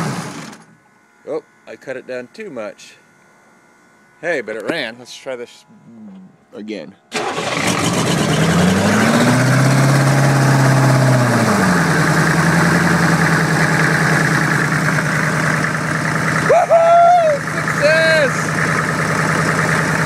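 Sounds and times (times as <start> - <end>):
diesel engine starting and idling: 0.0 - 0.7, 7.1 - 20.0.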